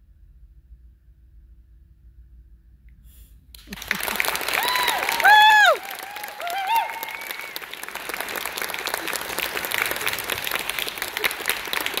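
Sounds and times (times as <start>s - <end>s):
audience applauding: 3.6s - 12.0s
vocal whoop: 4.5s - 7.6s.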